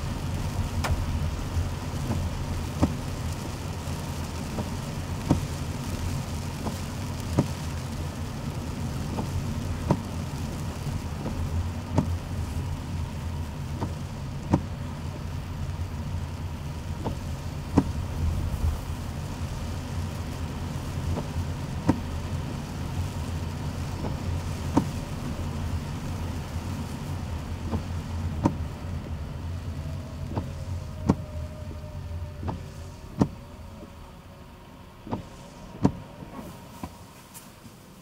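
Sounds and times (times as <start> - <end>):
car engine and road rumble: 0.0 - 38.0
raindrops striking car roof: 0.0 - 38.0.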